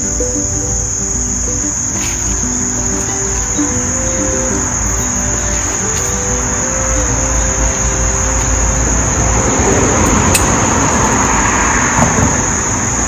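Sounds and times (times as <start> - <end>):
soft background music: 0.0 - 11.8
broad rush of noise: 0.0 - 13.0
crickets buzzing: 0.0 - 13.0.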